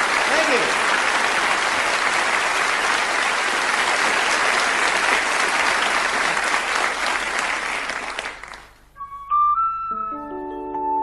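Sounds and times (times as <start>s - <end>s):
audience applause: 0.0s - 8.8s.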